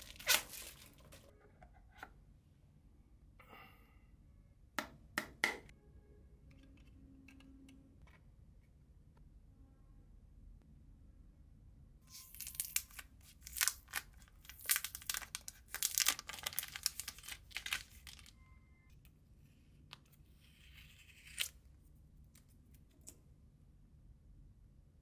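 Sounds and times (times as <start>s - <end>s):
plastic film crinkling and tearing: 0.0s - 1.2s, 12.1s - 18.3s.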